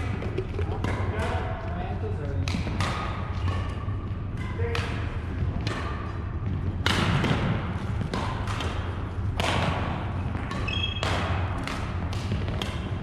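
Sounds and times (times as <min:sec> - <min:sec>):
steady low hum: 0:00.0 - 0:13.0
badminton racket hitting shuttlecock: 0:02.4 - 0:06.2, 0:06.8 - 0:13.0
shoe squeaks on wooden court: 0:10.5 - 0:11.1.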